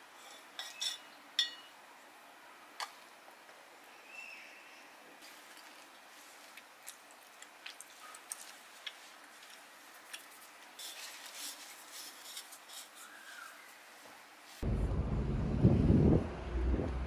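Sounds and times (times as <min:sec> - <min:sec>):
paper towel scraping jar rim: 0:10.8 - 0:13.6.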